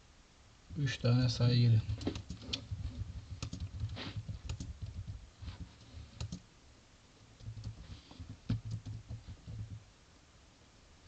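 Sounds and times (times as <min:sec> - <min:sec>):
keyboard typing: 0:01.8 - 0:06.4, 0:07.4 - 0:09.8.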